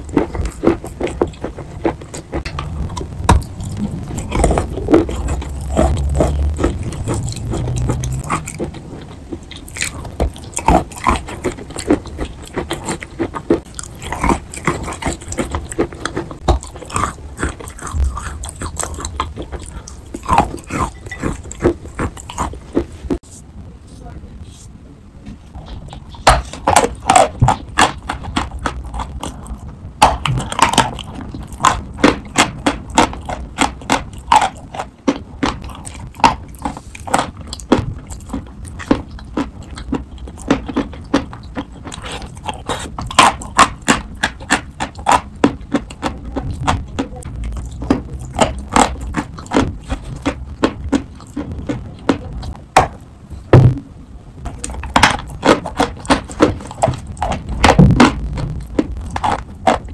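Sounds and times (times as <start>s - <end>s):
chalk crunching when chewed: 0.0s - 23.2s, 25.6s - 53.0s, 54.4s - 59.9s.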